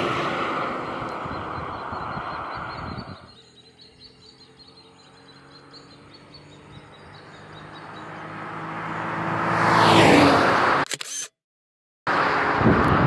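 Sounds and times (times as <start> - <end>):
car engine approaching: 0.0 - 10.8, 12.1 - 13.0
faint birds chirping: 0.6 - 8.5
tyre and wind noise: 12.4 - 13.0.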